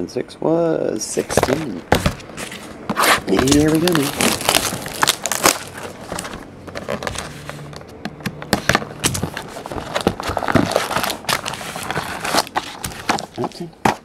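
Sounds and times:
plastic wrap crackling: 0:01.2 - 0:07.6, 0:09.0 - 0:13.7.

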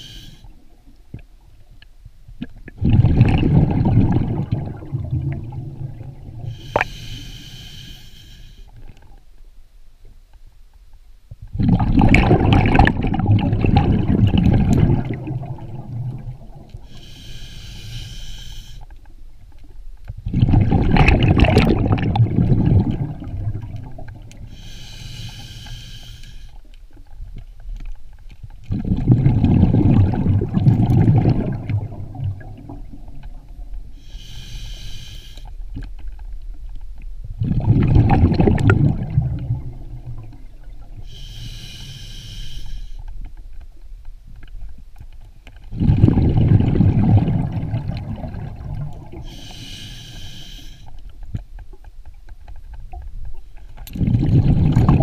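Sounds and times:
regulator inhalation hiss: 0:00.0 - 0:00.5, 0:06.5 - 0:08.7, 0:16.8 - 0:18.9, 0:24.5 - 0:26.6, 0:34.0 - 0:35.6, 0:41.0 - 0:43.0, 0:49.2 - 0:51.0
exhaled bubbles underwater: 0:02.4 - 0:06.8, 0:11.5 - 0:16.9, 0:20.2 - 0:24.6, 0:28.6 - 0:34.1, 0:37.3 - 0:41.3, 0:45.7 - 0:50.3, 0:53.8 - 0:55.0.

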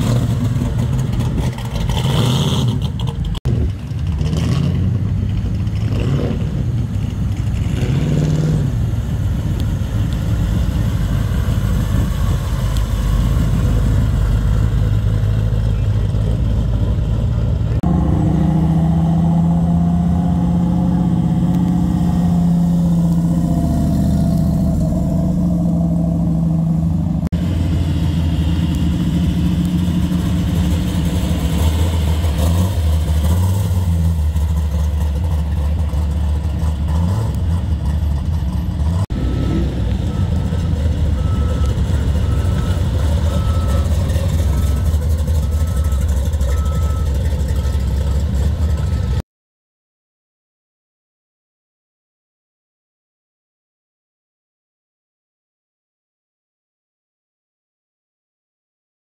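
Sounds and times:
car engines idling: 0:00.0 - 0:04.2, 0:08.7 - 0:18.2, 0:20.7 - 0:49.2.

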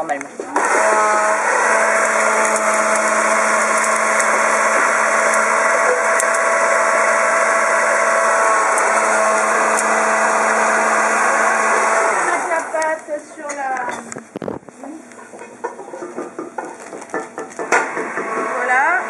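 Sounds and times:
electric hand blender running: 0:00.4 - 0:13.0, 0:17.1 - 0:19.0.

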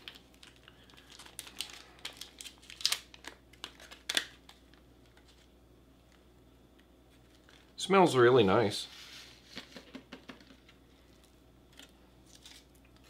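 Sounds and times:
foil pouch crinkling: 0:00.0 - 0:05.5.

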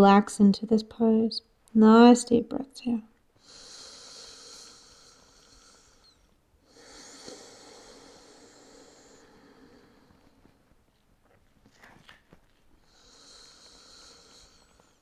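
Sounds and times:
slow deep breathing: 0:03.4 - 0:10.7, 0:12.8 - 0:15.0.

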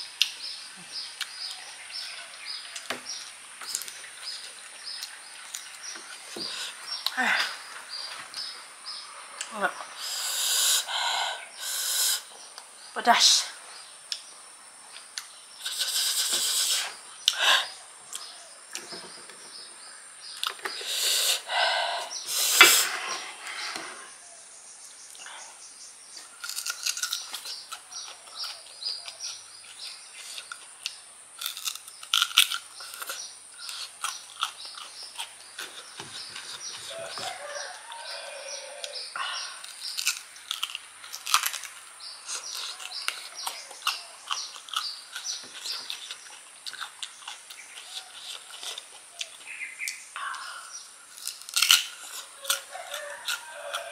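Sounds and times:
crunching and chewing: 0:00.0 - 0:08.7, 0:18.1 - 0:23.7, 0:26.2 - 0:50.0, 0:51.0 - 0:53.9
sucking and slurping: 0:09.4 - 0:12.3, 0:15.6 - 0:17.8, 0:20.5 - 0:24.2.

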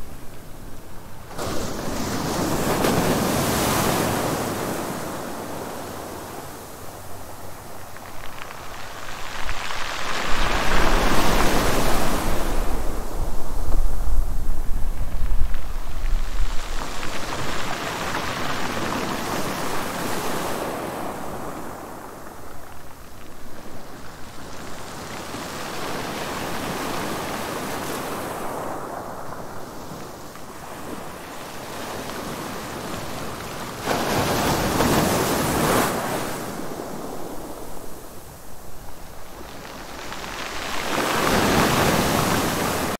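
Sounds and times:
ocean waves washing in: 0:01.1 - 0:07.7.

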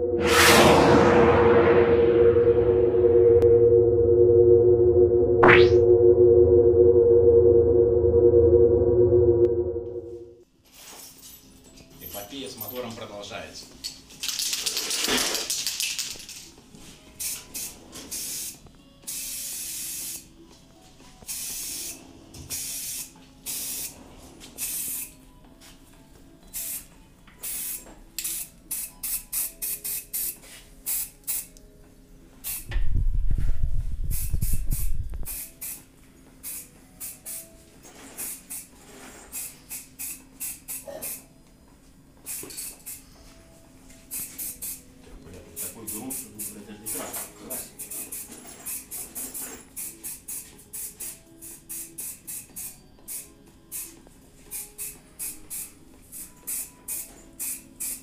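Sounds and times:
loud low rumble: 0:00.0 - 0:10.3
spray paint can hissing: 0:17.2 - 0:20.2, 0:21.3 - 0:24.0, 0:24.6 - 0:25.1, 0:26.6 - 0:31.5, 0:32.4 - 0:32.7, 0:34.1 - 0:37.4, 0:38.2 - 0:38.7, 0:39.3 - 0:41.2, 0:42.3 - 0:43.0, 0:44.1 - 0:44.8, 0:47.8 - 0:49.0, 0:49.8 - 0:53.9, 0:54.5 - 0:58.0.

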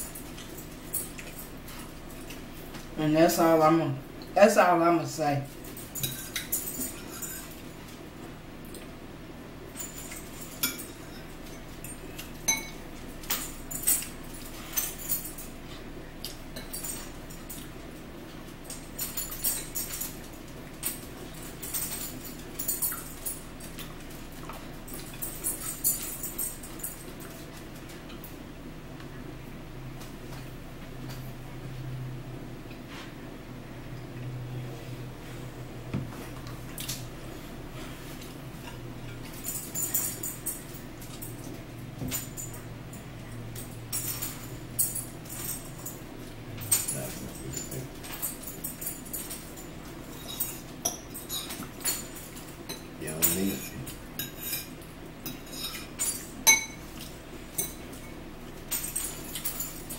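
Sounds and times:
low steady hum: 0:00.0 - 0:59.9
forks clinking against plates: 0:05.6 - 0:08.0, 0:09.8 - 0:15.6, 0:16.2 - 0:17.7, 0:18.7 - 0:28.2, 0:43.3 - 0:59.9.

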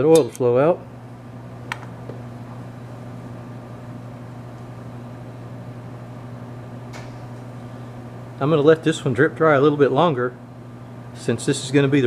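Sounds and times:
machinery electrical hum: 0:00.0 - 0:12.0
small click: 0:06.9 - 0:07.2.

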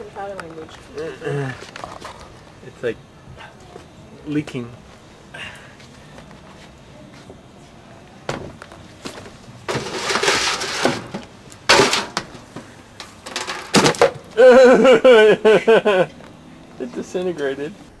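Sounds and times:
pumpkin crashing into metal bucket: 0:09.7 - 0:14.4
person crying out: 0:14.4 - 0:15.1.

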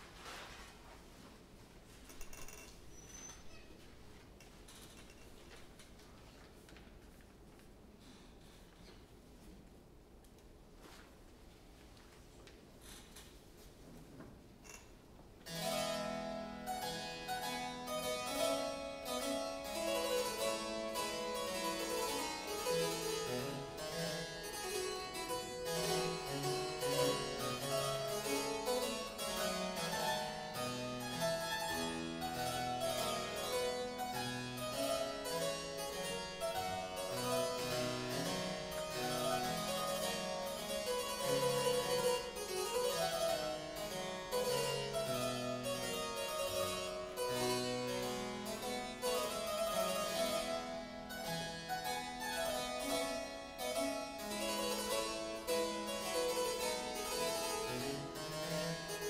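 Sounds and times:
solo harpsichord playing: 0:15.4 - 0:59.0.

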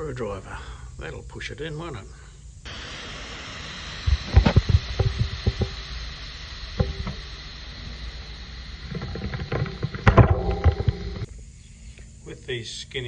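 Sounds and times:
air hissing from tyre valve: 0:02.6 - 0:11.3.

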